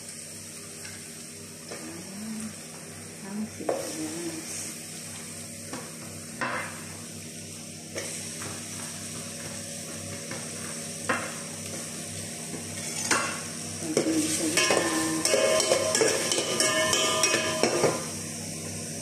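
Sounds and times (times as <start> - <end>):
garlic and onion sizzling in pot: 0.0 - 19.0.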